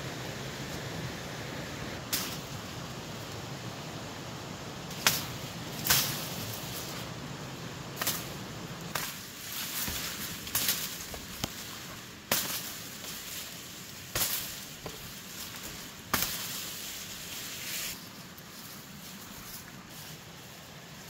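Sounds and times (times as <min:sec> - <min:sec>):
leaves rustling: 0:00.0 - 0:21.0
machete chopping undergrowth: 0:04.9 - 0:06.7, 0:08.0 - 0:17.9.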